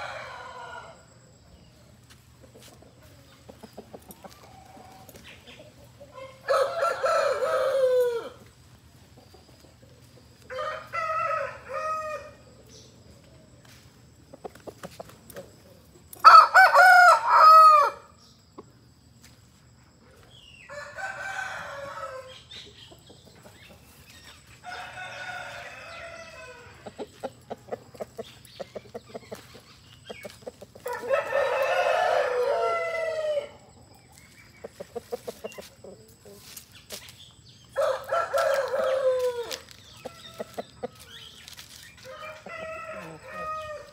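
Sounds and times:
roosters crowing: 0.0s - 1.3s, 6.0s - 8.6s, 10.3s - 12.6s, 16.2s - 18.2s, 20.7s - 22.5s, 24.5s - 27.2s, 30.8s - 33.9s, 37.7s - 43.9s.

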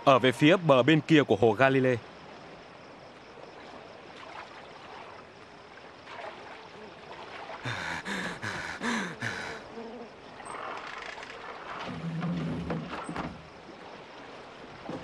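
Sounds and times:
water lapping at shore: 2.0s - 15.0s
man growling with gasping breaths: 7.7s - 9.7s.

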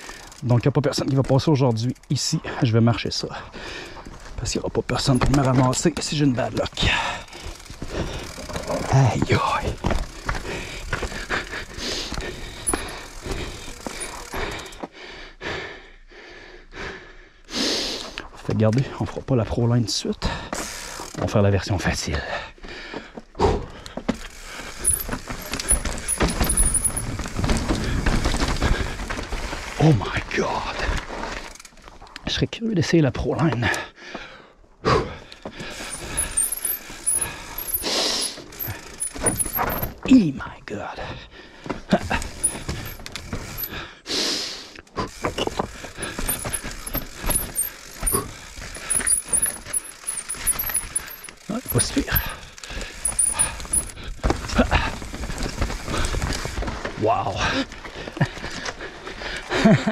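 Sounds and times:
bike chain and parts rattling: 0.0s - 14.8s, 20.3s - 21.5s, 24.0s - 30.0s, 30.9s - 32.2s, 35.6s - 40.1s, 41.8s - 43.9s, 44.9s - 58.7s
bike tyres rumbling: 3.3s - 14.8s, 20.3s - 21.3s, 23.6s - 32.1s, 35.5s - 40.1s, 41.7s - 43.9s, 44.9s - 59.0s.

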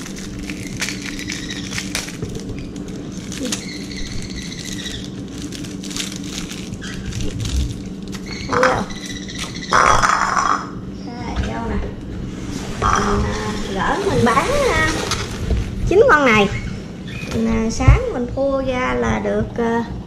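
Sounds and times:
plastic packet crinkling: 0.0s - 9.7s
steady low hum: 0.0s - 20.0s
thin high-pitched calls: 0.5s - 2.0s, 3.4s - 5.2s, 6.7s - 7.3s, 8.2s - 10.0s.

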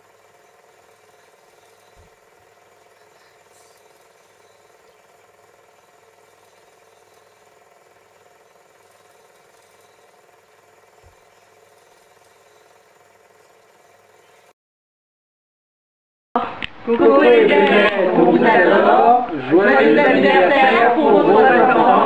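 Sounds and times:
film projector whirring: 0.0s - 14.6s, 16.6s - 22.0s.

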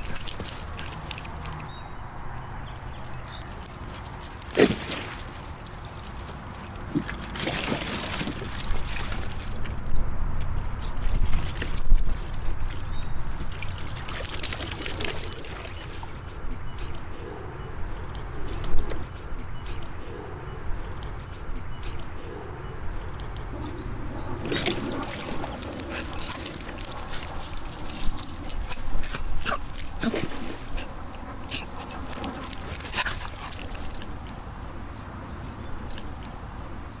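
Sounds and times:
dogs splashing water: 3.0s - 9.8s, 11.0s - 16.4s, 23.8s - 36.6s.

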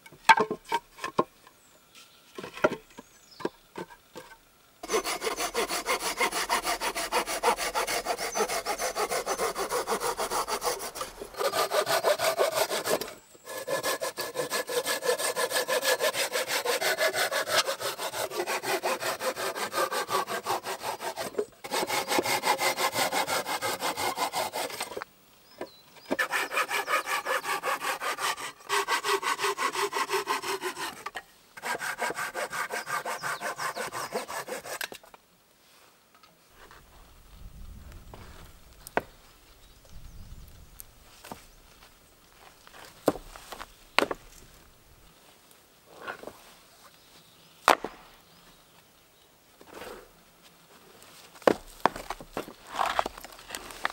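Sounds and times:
hand saw cutting wood: 4.8s - 25.0s, 26.1s - 35.0s.

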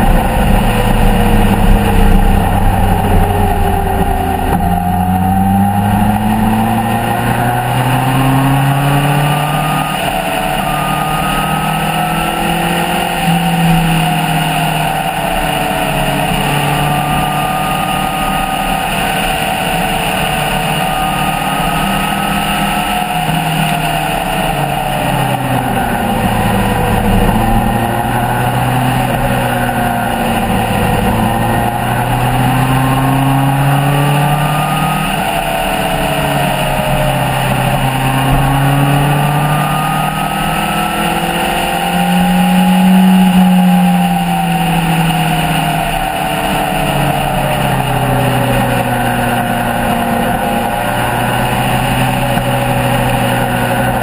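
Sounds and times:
motorcycle engine revving: 0.0s - 54.0s
wind noise: 0.0s - 54.0s.

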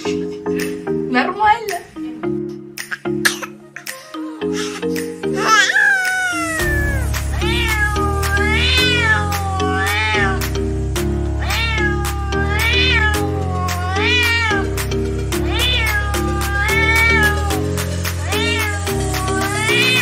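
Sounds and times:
background music with bass line: 0.0s - 20.0s
cat meowing: 5.4s - 10.5s, 11.4s - 14.8s, 15.4s - 20.0s.

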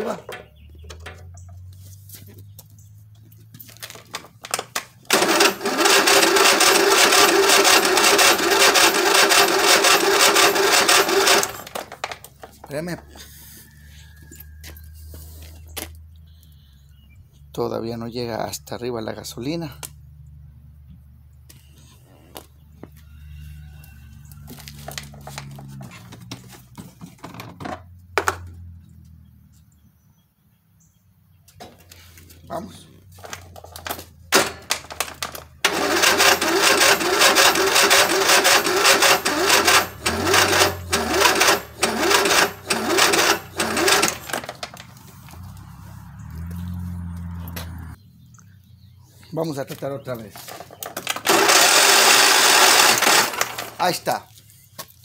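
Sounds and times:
electric starter cranking engine: 4.0s - 13.0s, 33.2s - 45.6s, 50.4s - 54.1s.

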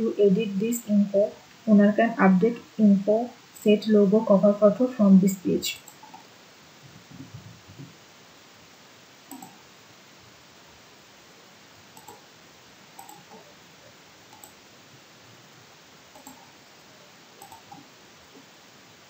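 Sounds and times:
faint steady hiss: 0.0s - 19.0s
computer mouse clicks: 5.8s - 6.2s, 9.3s - 9.6s, 12.0s - 12.2s, 13.0s - 13.4s, 14.3s - 14.6s, 16.1s - 16.5s, 17.4s - 17.8s.

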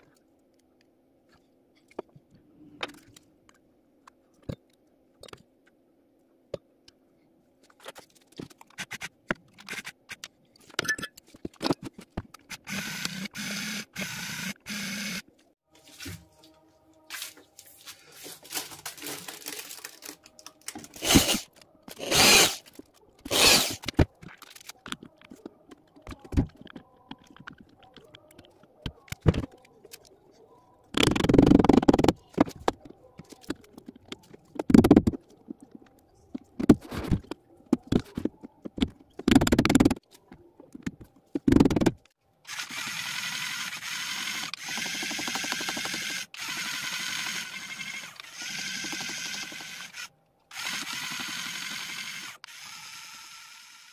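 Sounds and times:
small gear motor whirring: 21.0s - 22.6s, 23.3s - 23.8s, 42.5s - 53.9s.

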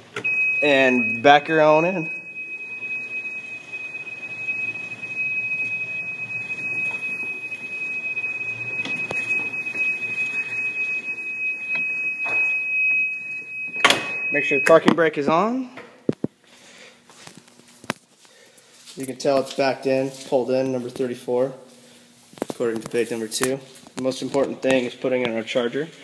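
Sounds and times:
reverse warning buzzer: 0.2s - 14.9s.

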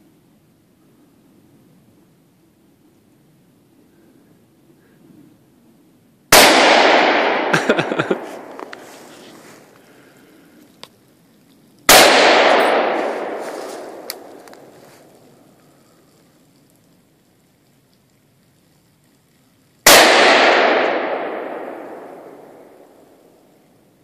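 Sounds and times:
rifle shots: 6.3s - 8.6s, 11.9s - 14.7s, 19.8s - 23.3s
gunshot echo rolling through woods: 6.3s - 9.8s, 11.9s - 16.2s, 19.8s - 24.0s.

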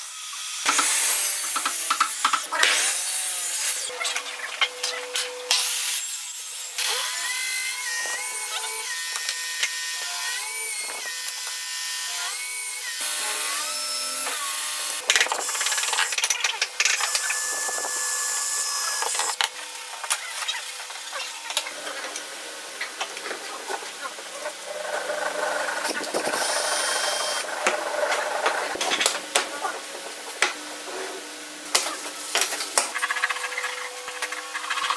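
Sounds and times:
electric drill boring wood: 0.0s - 4.0s, 4.6s - 19.5s, 24.5s - 28.9s
miter saw cutting wood: 0.0s - 19.4s, 23.4s - 34.9s.

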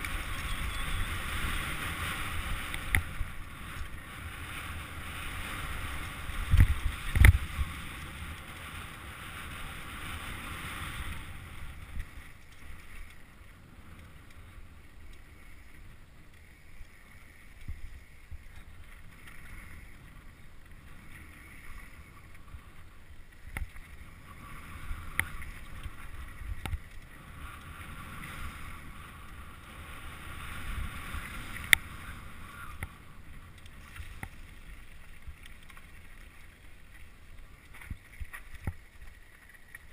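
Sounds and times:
wind rushing over microphone: 0.0s - 12.3s, 23.5s - 33.6s.

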